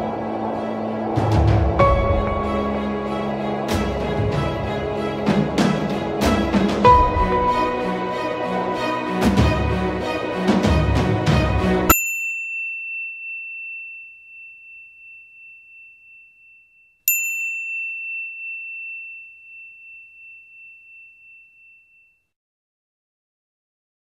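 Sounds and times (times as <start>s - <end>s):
high bell-like ding: 11.9s - 22.3s.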